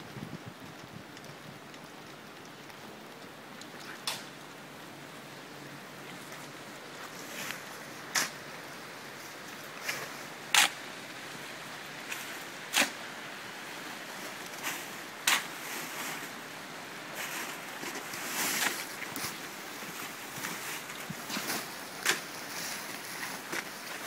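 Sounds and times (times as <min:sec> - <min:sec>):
rain and running water: 0:00.0 - 0:24.0
rough rustle: 0:00.2 - 0:24.0
shovel scraping sand: 0:12.1 - 0:13.0.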